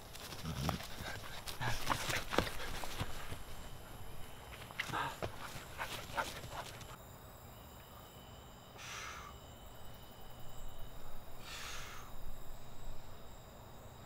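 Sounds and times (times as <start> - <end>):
quick footsteps on grass: 0.0 - 7.0
man's forceful breaths: 0.8 - 4.0, 4.6 - 7.0, 11.4 - 12.2.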